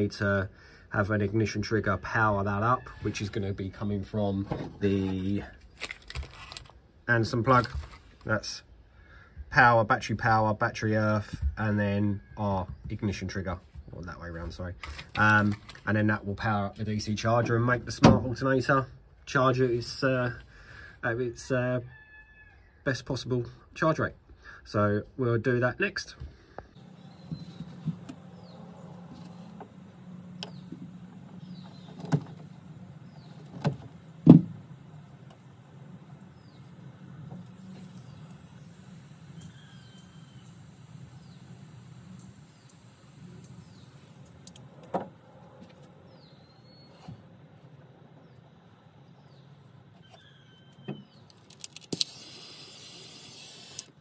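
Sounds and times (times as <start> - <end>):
butane torch hissing: 26.7 - 44.9, 51.8 - 54.0
low steady hum: 26.8 - 46.6
torch igniter click: 29.6 - 30.8.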